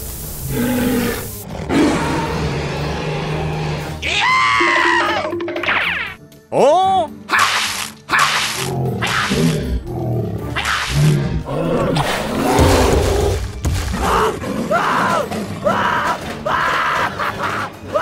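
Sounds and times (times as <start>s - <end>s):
hissing bursts: 0.0s - 1.5s
background music: 0.2s - 18.0s
dinosaur roar: 0.5s - 5.3s, 8.5s - 18.0s.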